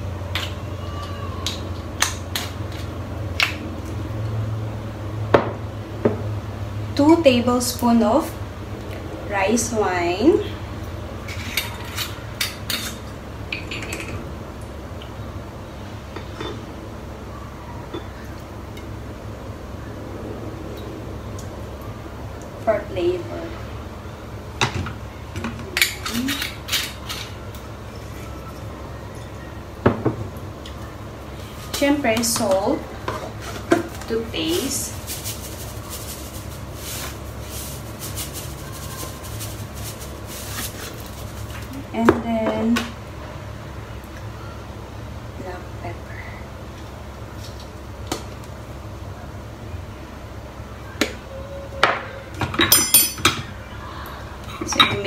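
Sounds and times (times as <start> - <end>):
spoon and glass clinking: 51.9 - 53.5.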